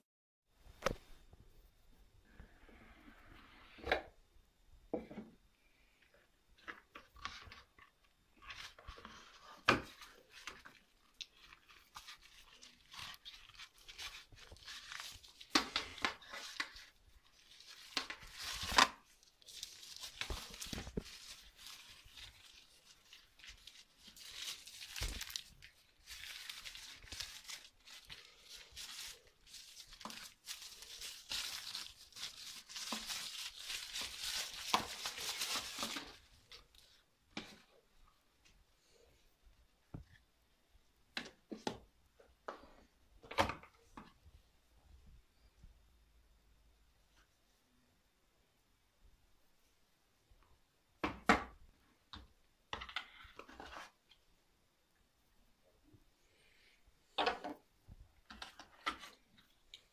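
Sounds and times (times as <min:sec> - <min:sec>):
tissue paper rustling: 0:08.4 - 0:37.0.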